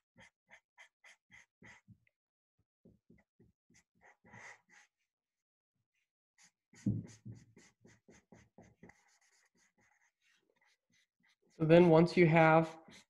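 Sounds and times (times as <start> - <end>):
marker scratching on paper: 0.2 - 1.8, 3.7 - 4.9, 6.4 - 13.0.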